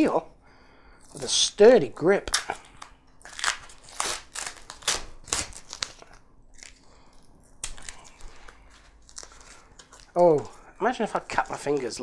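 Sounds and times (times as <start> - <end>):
paper crumpling and tearing: 2.3 - 6.8, 7.6 - 12.0.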